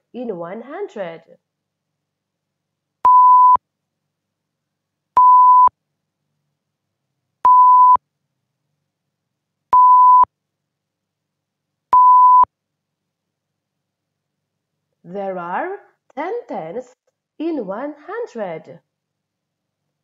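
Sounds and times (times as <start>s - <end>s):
electronic beeps: 3.1s - 3.6s, 5.2s - 5.7s, 7.5s - 8.0s, 9.8s - 10.3s, 12.0s - 12.5s.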